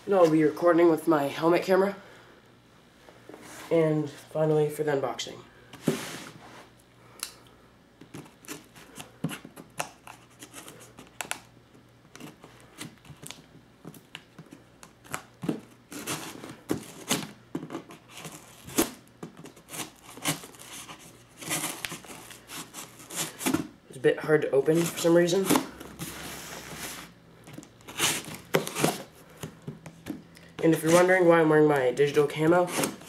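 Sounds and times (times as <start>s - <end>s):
knife scraping plastic wrap and tape: 15.9s - 23.5s, 27.9s - 29.1s, 32.5s - 33.0s.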